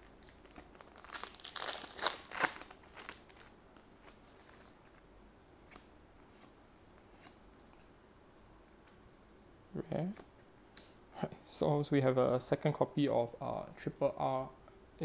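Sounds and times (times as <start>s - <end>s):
plastic wrapper tearing and crinkling: 0.2s - 5.0s.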